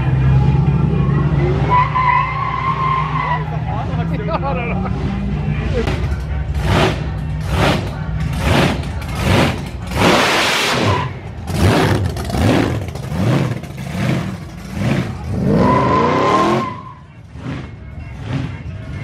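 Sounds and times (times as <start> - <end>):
car engines revving: 0.0 - 19.0.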